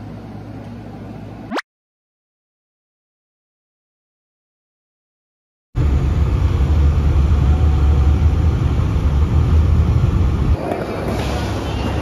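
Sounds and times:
bus engine and road rumble: 5.8 - 10.6.

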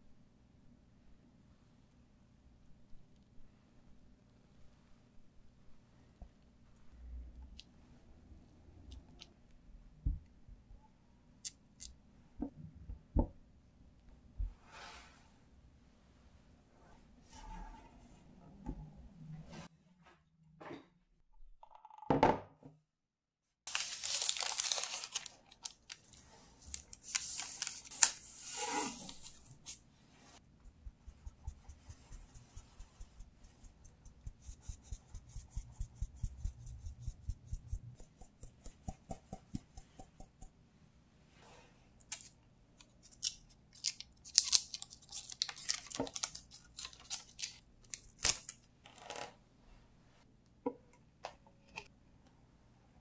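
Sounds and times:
sugar rustling in a sieve: 23.7 - 30.4.

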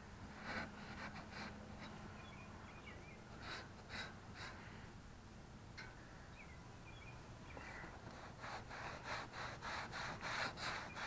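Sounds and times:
bird chirps: 2.1 - 3.3, 5.9 - 8.0.

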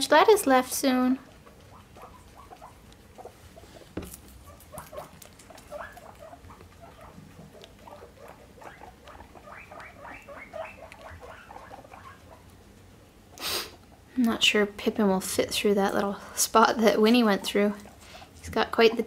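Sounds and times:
guinea pigs squeaking: 0.0 - 19.0
faint crunching of lettuce: 1.2 - 10.2.

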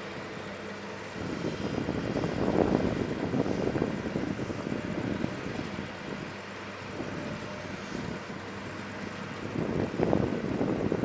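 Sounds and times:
tug engine running: 0.0 - 11.0.

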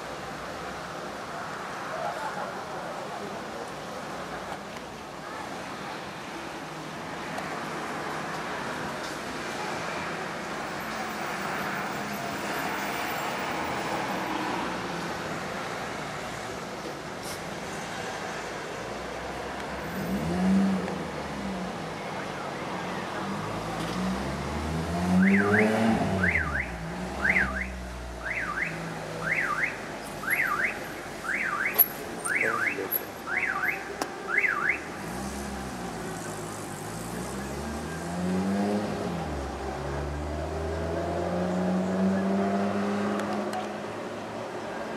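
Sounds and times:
car engine revving: 23.2 - 28.1
car alarm whooping: 25.2 - 34.9.

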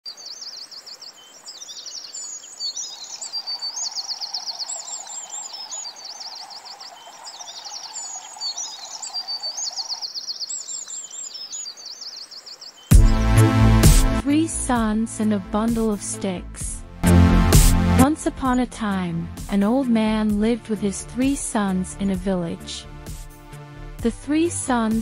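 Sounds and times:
songbirds chirping and trilling: 0.1 - 13.8.

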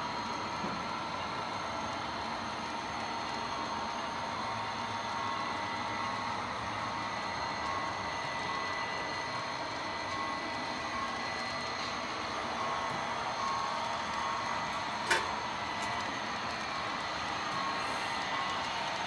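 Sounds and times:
model train humming on track: 0.0 - 19.0.

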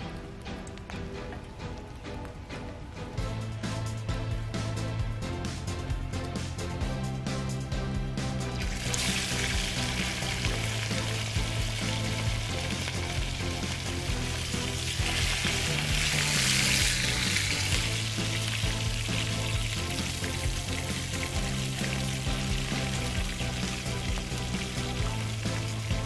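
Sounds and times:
background music with bass line: 0.0 - 26.0
food sizzling in a pan: 8.6 - 26.0.

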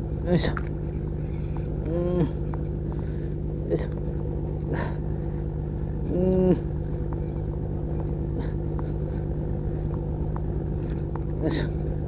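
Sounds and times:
motor droning: 0.0 - 12.0.

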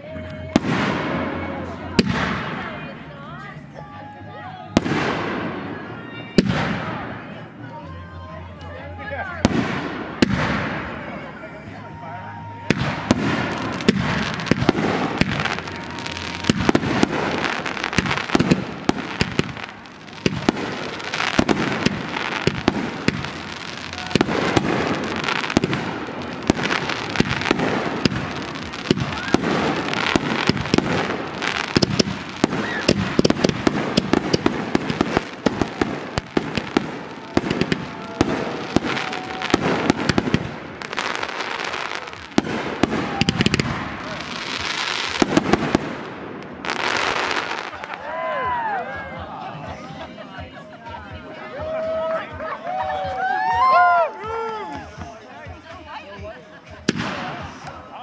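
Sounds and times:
fireworks bangs and crackles: 0.1 - 3.6, 4.7 - 7.5, 9.4 - 11.8, 12.4 - 48.4, 54.8 - 58.0.

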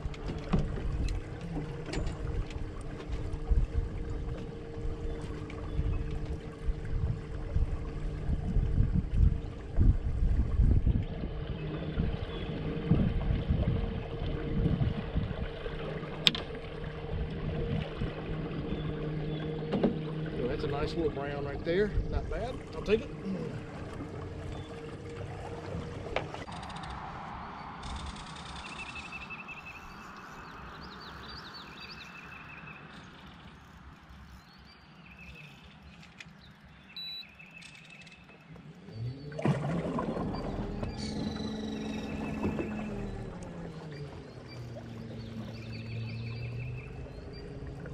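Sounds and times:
steady low hum: 0.0 - 26.5
water lapping against boat hull: 0.0 - 27.2, 27.8 - 47.9
wind buffeting microphone: 0.0 - 28.0
songbirds trilling: 0.8 - 8.1, 10.9 - 14.6, 16.7 - 26.6, 27.6 - 47.9.

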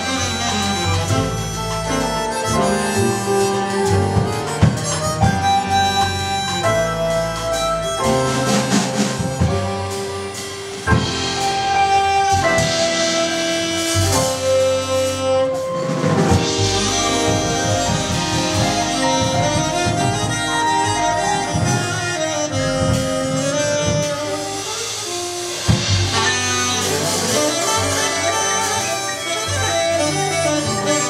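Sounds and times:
double bass: 0.0 - 31.0
drum kit: 0.0 - 31.0
harmonica melody: 0.0 - 31.0
piano: 0.0 - 31.0
sharp drum hit: 8.5 - 28.7.

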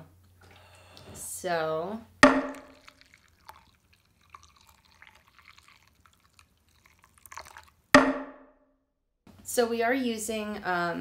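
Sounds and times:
loud sharp ringing knock: 2.2 - 2.6, 8.0 - 8.4
water trickling into ceramic bowl: 2.2 - 7.9.

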